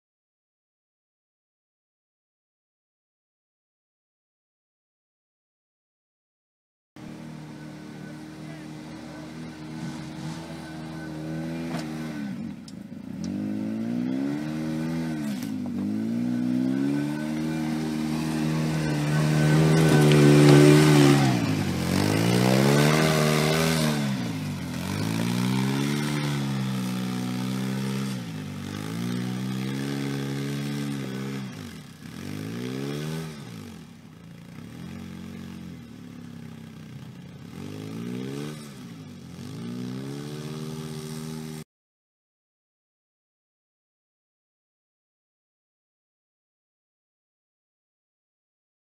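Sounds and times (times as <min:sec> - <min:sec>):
off-road vehicle engine revving: 0:07.0 - 0:41.6.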